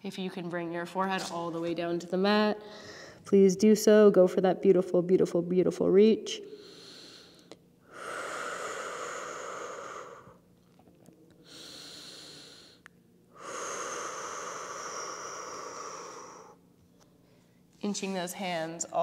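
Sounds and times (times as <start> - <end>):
woman breathing deeply: 2.6 - 3.3, 6.4 - 10.5, 11.4 - 17.6.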